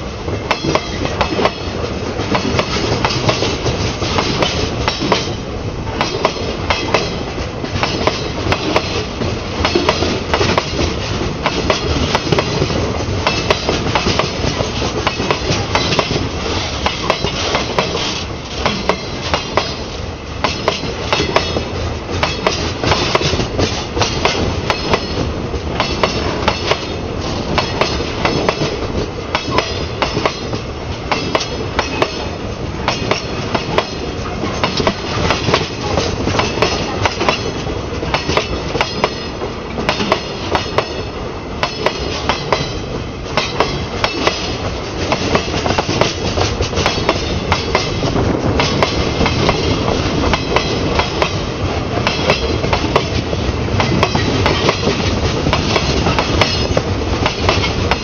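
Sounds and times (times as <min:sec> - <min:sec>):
freight train passing: 0:00.0 - 0:58.0
train wheels clacking on rails: 0:00.0 - 0:58.0.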